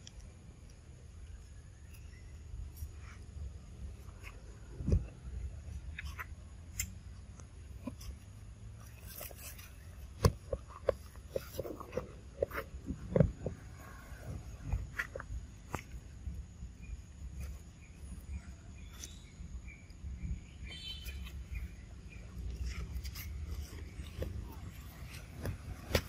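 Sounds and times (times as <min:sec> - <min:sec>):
monkeys grooming rustles and clicks: 0:07.4 - 0:16.4, 0:21.0 - 0:26.0.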